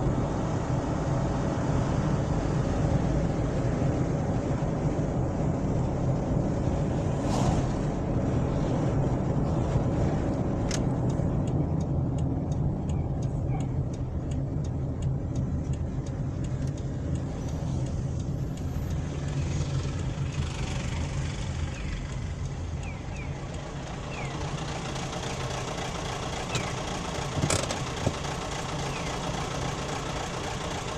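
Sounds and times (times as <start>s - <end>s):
car engine and road noise: 0.0s - 30.9s
turn signal relay ticking: 9.0s - 30.9s.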